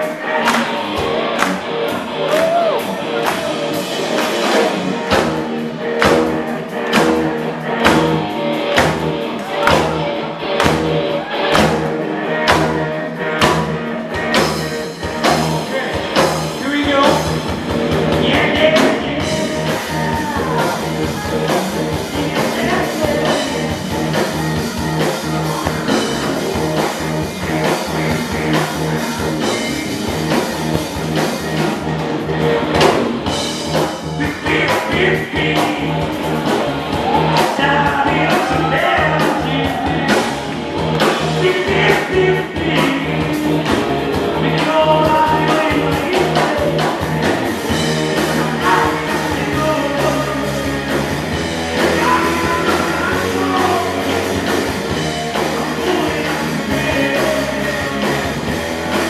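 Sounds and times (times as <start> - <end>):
rock band playing live: 0.0 - 59.0
steady kick-drum beat: 0.0 - 59.0
man singing: 15.2 - 17.4, 18.0 - 24.2, 34.0 - 36.2, 37.2 - 40.4, 41.0 - 51.0, 51.7 - 58.4.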